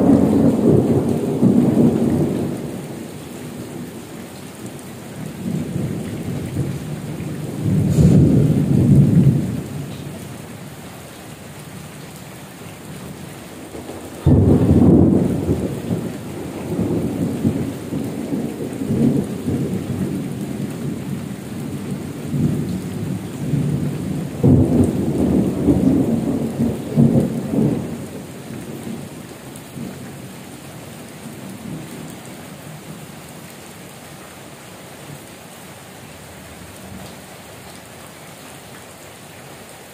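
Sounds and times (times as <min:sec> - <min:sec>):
thunder rumbling: 0:00.0 - 0:04.1, 0:05.2 - 0:10.2, 0:13.0 - 0:30.3
heavy rain falling: 0:00.0 - 0:39.9.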